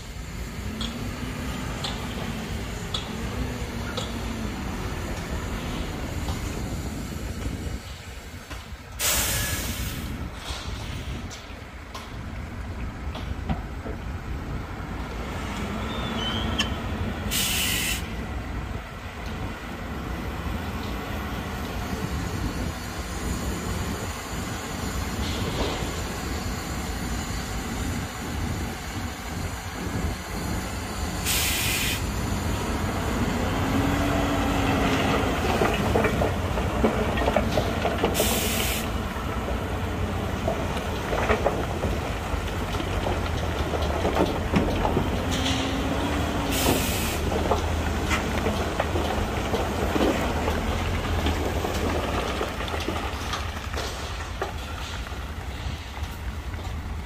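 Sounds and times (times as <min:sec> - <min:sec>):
heavy diesel machinery running: 0:00.0 - 0:57.0
air-brake hisses: 0:09.0 - 0:11.3, 0:17.3 - 0:18.2, 0:31.2 - 0:32.1, 0:38.2 - 0:39.0, 0:46.5 - 0:47.3.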